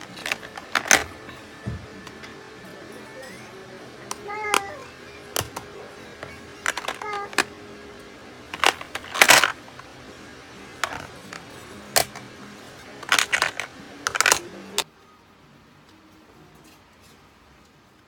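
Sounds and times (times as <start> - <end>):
makeup cases clinking together: 0.0 - 1.3, 5.4 - 7.5, 8.5 - 9.6, 10.8 - 12.2, 13.0 - 14.5.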